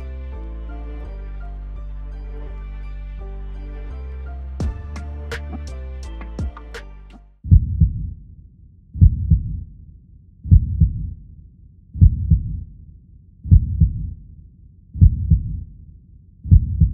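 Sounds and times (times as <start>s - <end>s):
heartbeat double thump: 7.4s - 8.2s, 9.0s - 9.6s, 10.5s - 11.2s, 12.0s - 12.6s, 13.5s - 14.1s, 15.0s - 15.6s, 16.5s - 16.9s.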